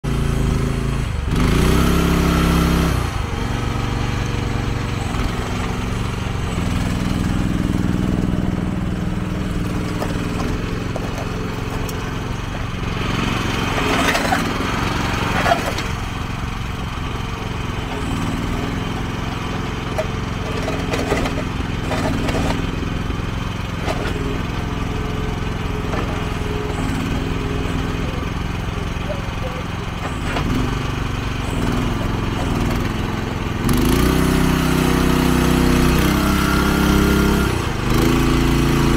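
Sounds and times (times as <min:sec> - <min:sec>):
excavator engine under load: 0:00.0 - 0:38.9
sharp knocks and scrapes: 0:09.5 - 0:12.7, 0:13.6 - 0:16.0, 0:19.8 - 0:22.8.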